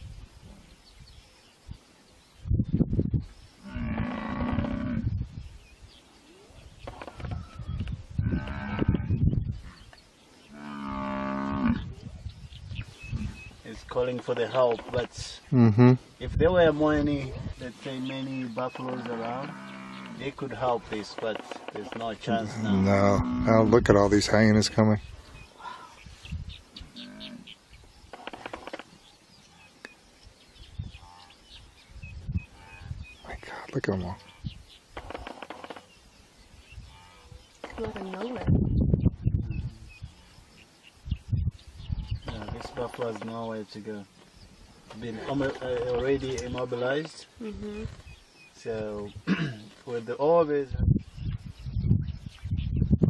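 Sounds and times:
rapid chattering call: 0:37.6 - 0:38.6.

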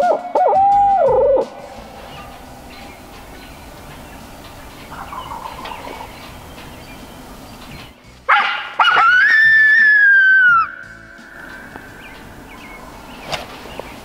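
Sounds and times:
coyote call yip and howl: 0:00.0 - 0:02.8, 0:08.3 - 0:10.8.

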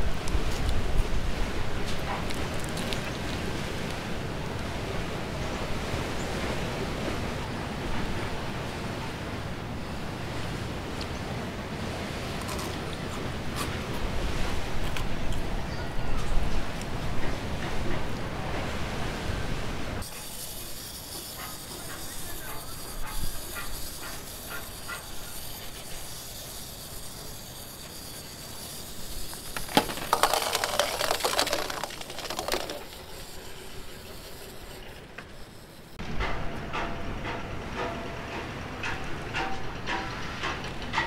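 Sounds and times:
wind-up toys clicking and whirring: 0:20.0 - 0:36.0.

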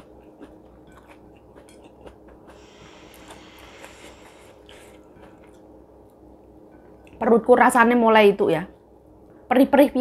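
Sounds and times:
soft chewing: 0:00.0 - 0:06.2
steady low hum: 0:00.0 - 0:10.0
soft hiss: 0:02.5 - 0:05.0.

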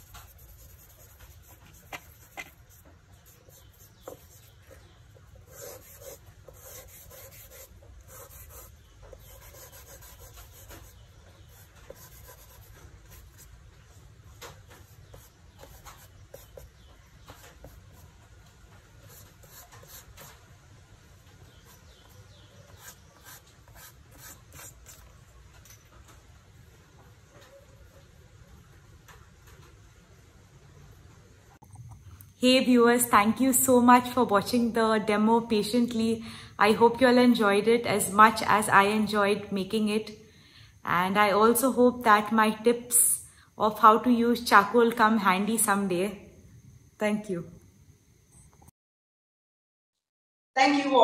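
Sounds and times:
scratchy charcoal strokes: 0:00.0 - 0:13.5, 0:21.6 - 0:25.2
fingers rubbing charcoal on paper: 0:00.0 - 0:13.6, 0:14.4 - 0:18.2.

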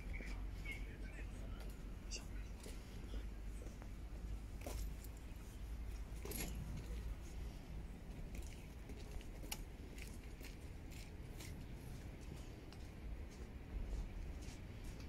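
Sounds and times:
faint low rumble: 0:00.0 - 0:15.0.

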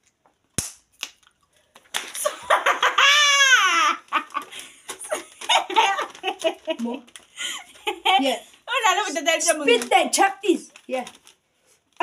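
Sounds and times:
girl laughing loudly: 0:02.2 - 0:08.3.

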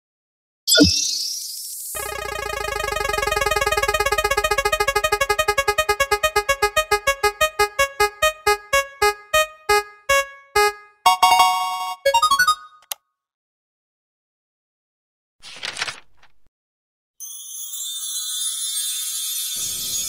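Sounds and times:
prize wheel electronic ticks: 0:02.0 - 0:12.9.

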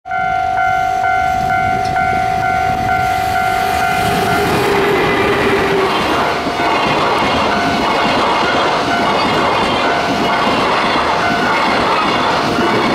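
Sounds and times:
pulsing warning tone: 0:00.1 - 0:12.9
train wheels clattering over rail joints: 0:04.0 - 0:12.9.

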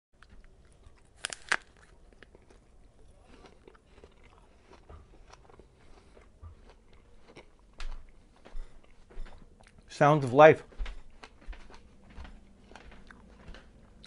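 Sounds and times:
apple crunching: 0:00.2 - 0:07.7
chewing crunches: 0:00.2 - 0:09.9, 0:12.6 - 0:14.0.

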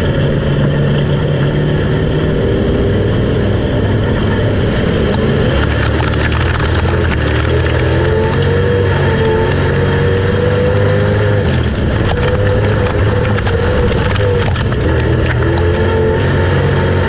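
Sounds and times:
race car engine accelerating: 0:00.0 - 0:17.0
rapid clicks and rattles: 0:05.0 - 0:17.0.

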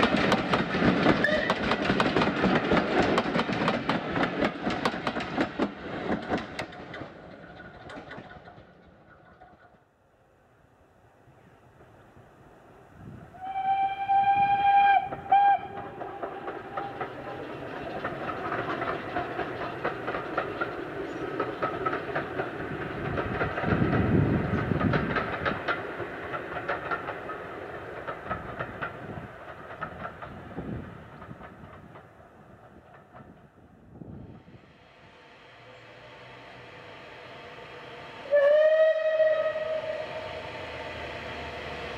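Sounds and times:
train clicking on rails: 0:00.0 - 0:10.1, 0:11.7 - 0:41.9
steam locomotive whistle: 0:01.2 - 0:01.6, 0:13.3 - 0:17.0, 0:35.0 - 0:41.9.

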